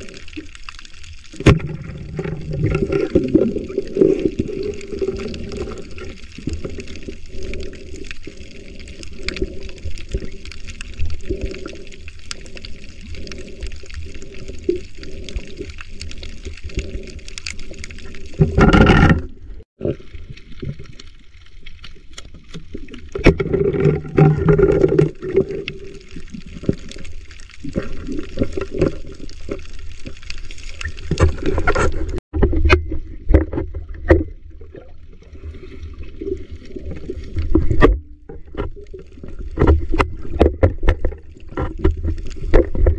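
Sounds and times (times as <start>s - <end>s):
muffled underwater sloshing: 0.0s - 42.9s.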